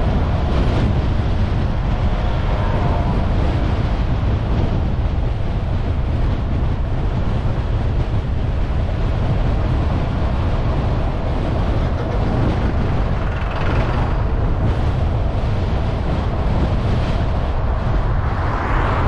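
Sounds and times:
road and tyre noise: 0.0s - 19.0s
wind buffeting microphone: 0.0s - 19.0s
lorry passing: 17.3s - 19.0s.

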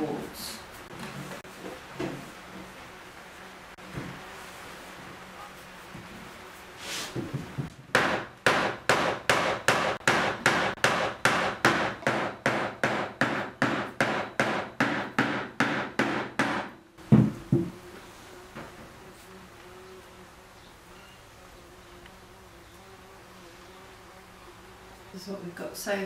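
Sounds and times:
dull thumps: 17.0s - 17.9s.

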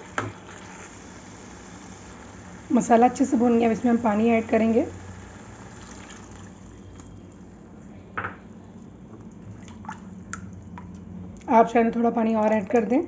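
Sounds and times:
water pouring into hot pan: 0.0s - 6.8s.

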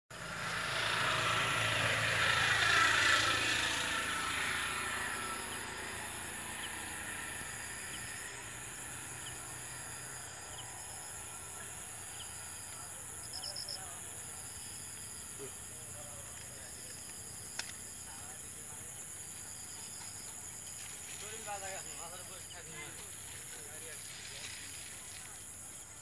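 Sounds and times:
distant engine rumble: 0.1s - 25.4s
high-pitched insect drone: 0.2s - 26.0s.

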